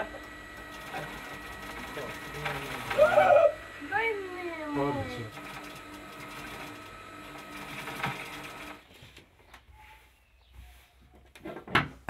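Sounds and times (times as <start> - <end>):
sewing machine stitching: 0.0 - 4.0, 4.7 - 8.9.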